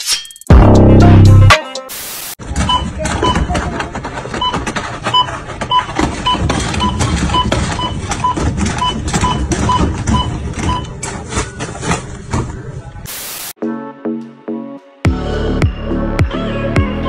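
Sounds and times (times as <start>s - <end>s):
barcode scanner beeping: 4.4s - 11.0s.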